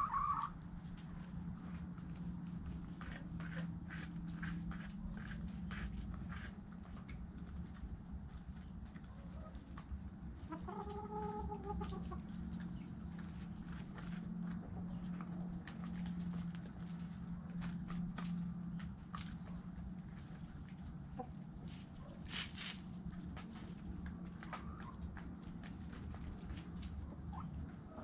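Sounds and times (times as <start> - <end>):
hen drawn-out call: 0.0 - 0.6
chickens clucking: 0.0 - 28.0.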